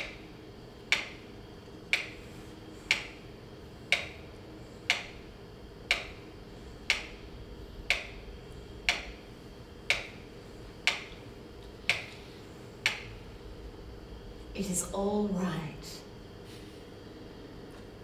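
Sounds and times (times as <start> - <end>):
sharp clicks: 10.8 - 12.2, 12.8 - 13.2.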